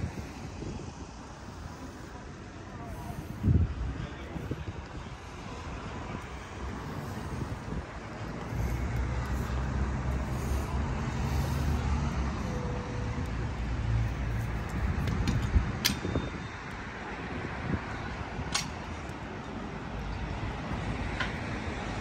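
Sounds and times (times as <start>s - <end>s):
general traffic noise: 0.0s - 22.0s
vehicle engine running: 5.4s - 15.3s
sharp clicks: 14.6s - 16.1s.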